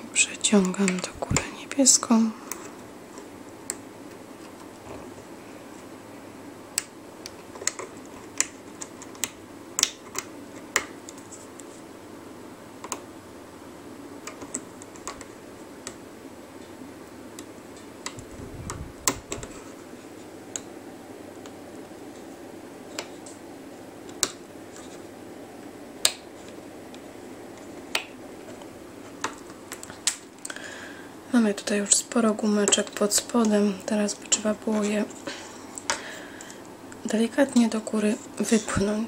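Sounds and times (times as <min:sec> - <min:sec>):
faint background hum: 0:00.0 - 0:39.0.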